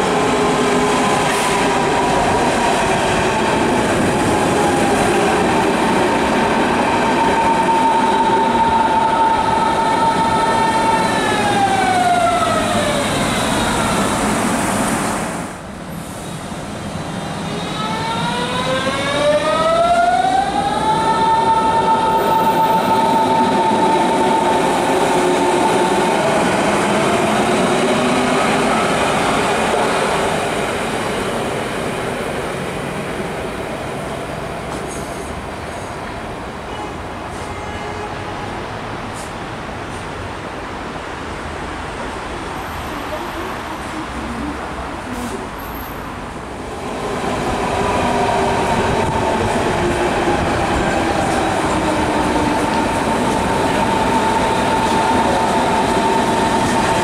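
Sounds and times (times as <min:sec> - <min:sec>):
train cars rumbling: 0:41.8 - 0:57.0.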